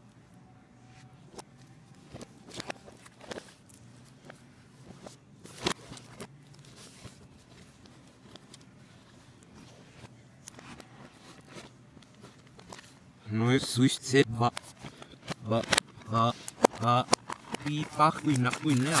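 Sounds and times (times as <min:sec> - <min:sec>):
plastic cases clicking together: 0:14.5 - 0:19.0.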